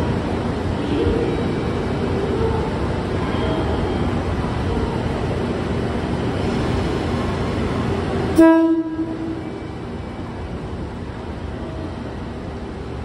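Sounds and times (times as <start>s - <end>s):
diesel train rumbling: 0.0s - 13.0s
train horn toot: 8.4s - 9.5s.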